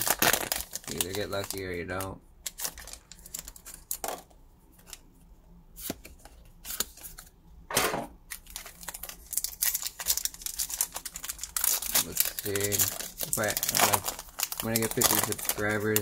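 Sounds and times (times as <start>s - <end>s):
foil wrapper crinkling: 0.0s - 4.1s, 8.3s - 16.0s
cards clicking and rustling: 0.0s - 5.0s, 5.8s - 7.3s, 8.3s - 16.0s.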